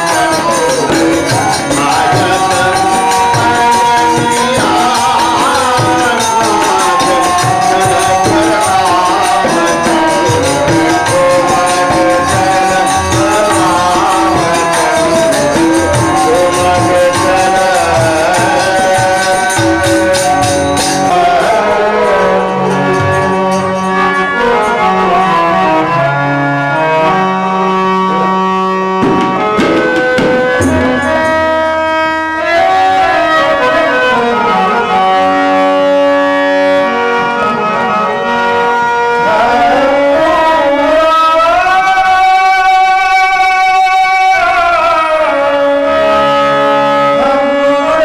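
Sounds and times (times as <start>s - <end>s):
tabla strokes: 0.0s - 24.9s, 27.1s - 33.9s
harmonium melody: 0.0s - 48.0s
man singing: 0.0s - 48.0s.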